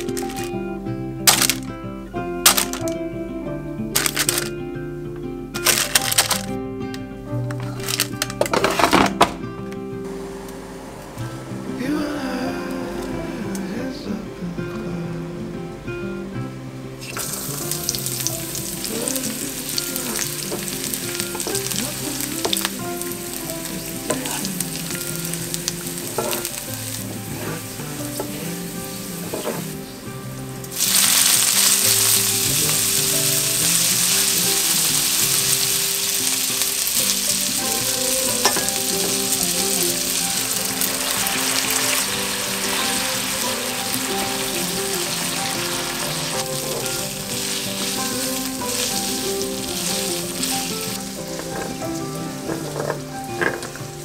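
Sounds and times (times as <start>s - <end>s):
stirring clicks: 0.0s - 0.6s, 7.6s - 8.8s
pasta dropping into hot oil: 1.3s - 1.6s, 2.4s - 3.0s, 4.0s - 4.5s, 5.6s - 6.5s, 7.7s - 9.4s
garlic sizzling in oil: 17.0s - 29.7s, 30.6s - 54.0s.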